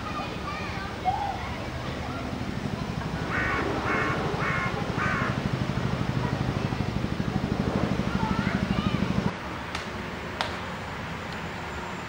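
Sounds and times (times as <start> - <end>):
crow cawing: 3.2 - 5.5.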